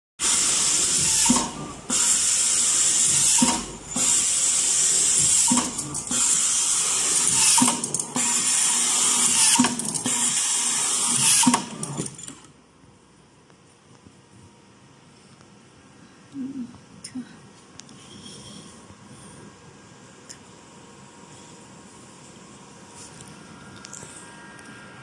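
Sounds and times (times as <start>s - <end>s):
high-pitched screw-driving machine: 0.2s - 12.5s.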